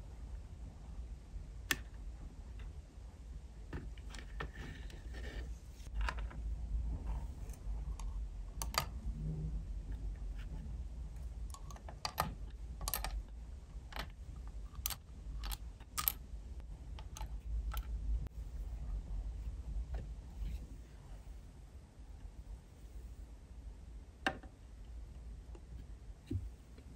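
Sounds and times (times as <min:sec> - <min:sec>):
steady low rumble: 0:05.5 - 0:26.9.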